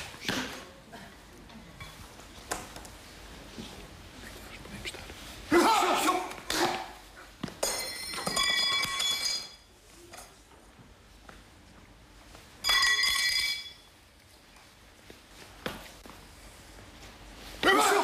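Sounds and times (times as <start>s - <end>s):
bell-like ringing tones: 7.6s - 9.7s, 12.6s - 14.0s.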